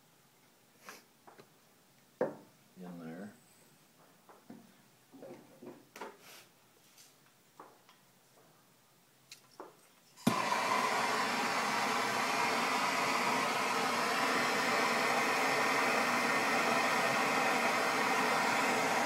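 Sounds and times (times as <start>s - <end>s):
gas torch flame hissing: 10.2s - 19.0s.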